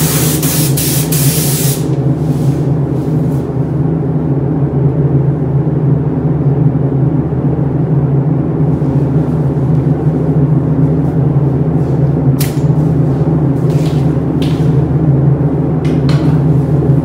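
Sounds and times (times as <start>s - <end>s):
spray gun hiss: 0.0s - 1.9s
spray booth air system rumble: 0.0s - 17.0s.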